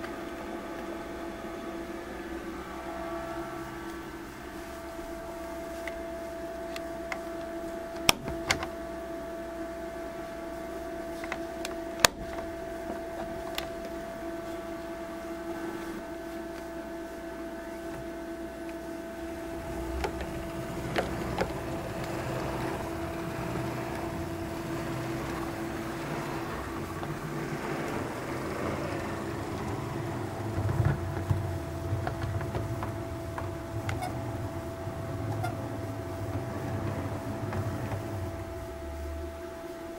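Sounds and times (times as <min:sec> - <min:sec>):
steady hum: 0:00.0 - 0:39.9
model locomotive running on track: 0:19.2 - 0:39.2
wheels clicking over rail joints: 0:19.3 - 0:38.9.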